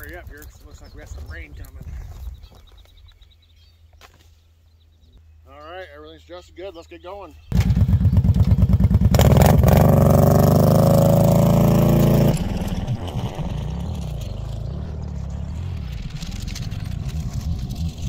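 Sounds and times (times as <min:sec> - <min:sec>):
distant quad bike running: 0:07.5 - 0:18.0
quad bike engine revving: 0:07.5 - 0:18.0.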